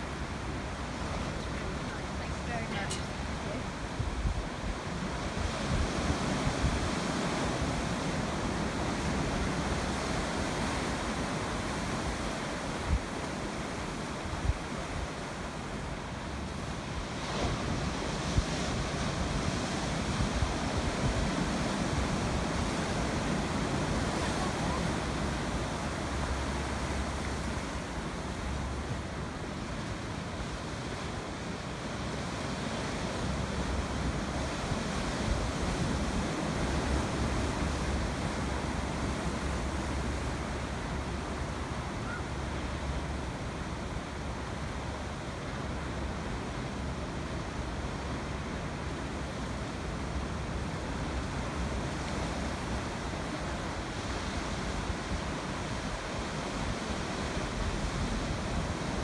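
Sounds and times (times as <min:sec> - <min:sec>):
waves breaking on rocks: 0:00.0 - 0:41.0.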